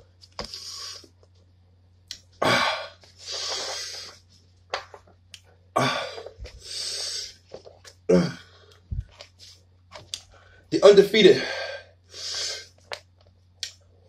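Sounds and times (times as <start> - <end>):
man breathing hard: 2.4 - 4.2, 5.8 - 7.4, 11.3 - 12.8
man grunting: 5.8 - 6.3, 8.1 - 8.4.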